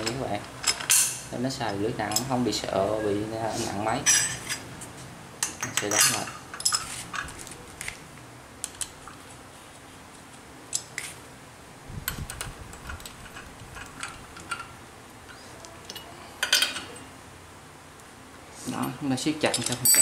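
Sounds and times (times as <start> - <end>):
metal clicks and clinks: 5.4 - 7.3, 12.1 - 14.8, 15.8 - 17.1, 18.8 - 20.0.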